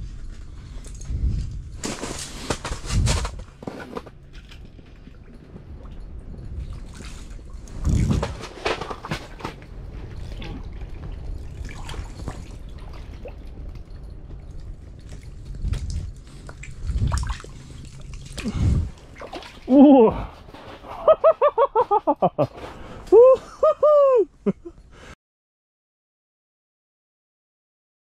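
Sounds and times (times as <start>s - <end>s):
water splashing and dripping: 10.0s - 20.6s.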